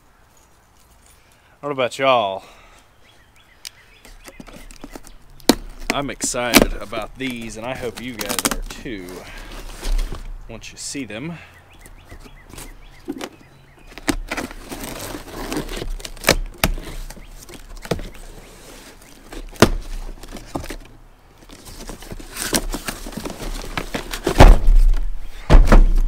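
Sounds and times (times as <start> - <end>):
packing tape and cardboard scraping: 4.0 - 10.3, 12.1 - 25.1
cardboard rustling and thumps: 4.3 - 10.4, 12.1 - 26.0.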